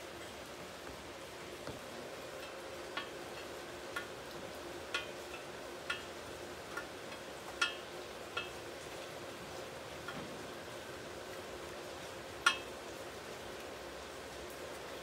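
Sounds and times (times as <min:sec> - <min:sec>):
sharp metallic ticks: 0:02.4 - 0:04.2, 0:04.8 - 0:08.6, 0:12.4 - 0:12.8.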